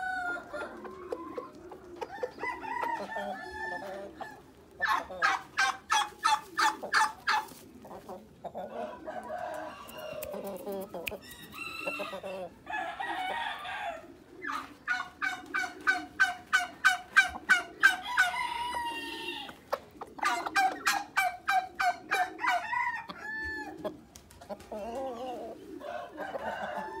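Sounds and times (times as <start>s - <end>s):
chickens clucking: 0.0s - 27.0s
rooster crowing: 2.2s - 4.1s, 8.7s - 10.4s, 11.2s - 14.1s, 17.9s - 19.5s, 22.2s - 23.8s, 25.8s - 27.0s.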